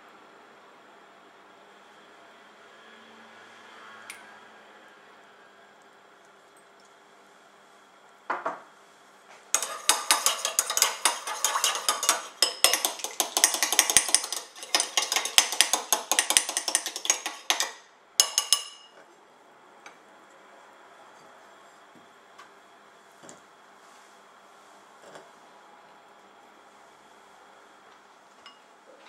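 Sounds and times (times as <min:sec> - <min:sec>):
spoon stirring in ceramic bowl: 0:09.5 - 0:19.0.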